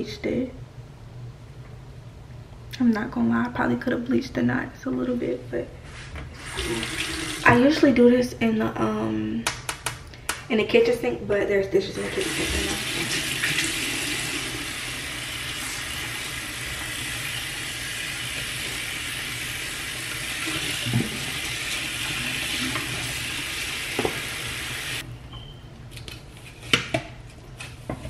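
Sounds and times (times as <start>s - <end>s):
faucet running water into sink: 6.4s - 7.7s, 12.0s - 25.0s.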